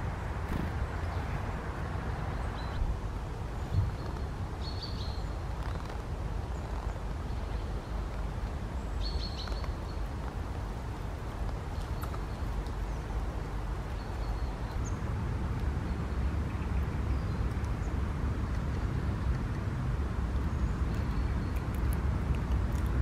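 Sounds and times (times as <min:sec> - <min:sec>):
rain ticks: 0:09.4 - 0:12.9, 0:18.4 - 0:23.0.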